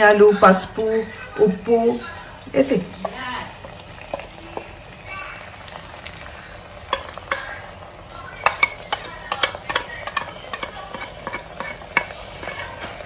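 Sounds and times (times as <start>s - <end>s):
oil sizzling in pan: 0.0s - 13.0s
spoon tapping against plate: 8.4s - 12.6s.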